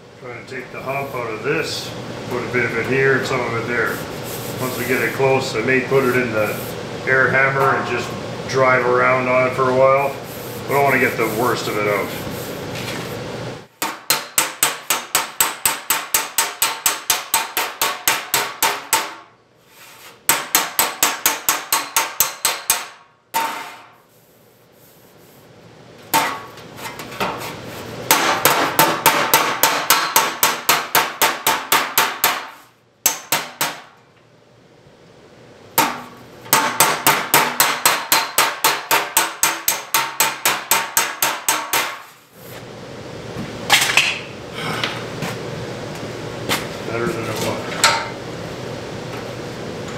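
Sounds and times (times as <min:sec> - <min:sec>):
hammer striking sheet metal: 0:13.8 - 0:19.3, 0:20.3 - 0:24.0, 0:28.1 - 0:34.0, 0:35.8 - 0:42.1.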